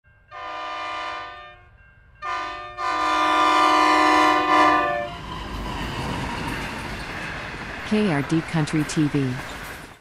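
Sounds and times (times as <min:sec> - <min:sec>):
locomotive air horn blasts: 0:00.3 - 0:01.6, 0:02.2 - 0:05.1.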